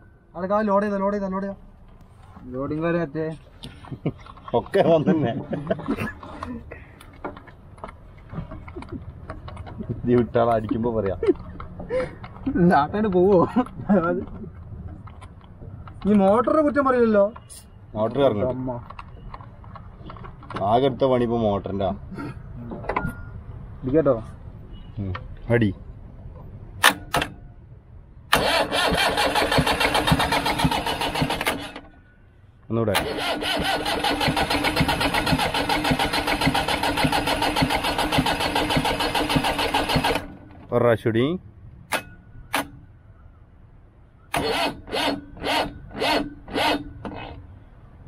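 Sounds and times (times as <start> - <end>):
sharp clicks: 18.5 - 20.6
starter motor cranking engine: 28.3 - 31.9, 32.9 - 40.5, 44.3 - 47.3.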